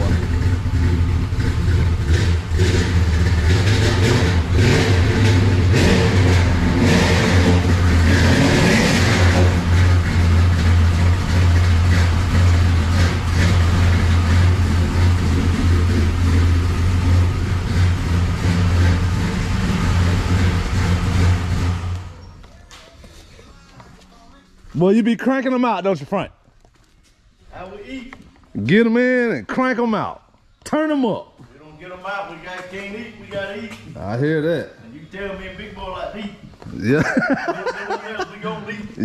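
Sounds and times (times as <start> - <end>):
truck engine idling and revving: 0.0 - 22.2.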